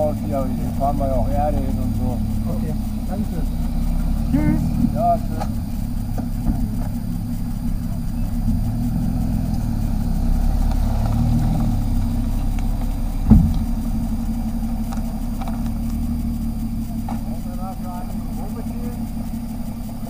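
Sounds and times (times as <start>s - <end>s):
car engine idling: 0.0s - 20.0s
sharp thump: 13.2s - 14.1s.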